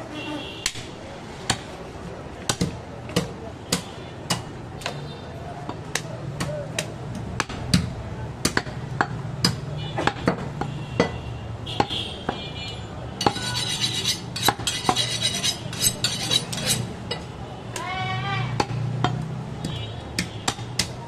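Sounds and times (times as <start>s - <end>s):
knife chopping meat on wood: 14.3s - 16.8s.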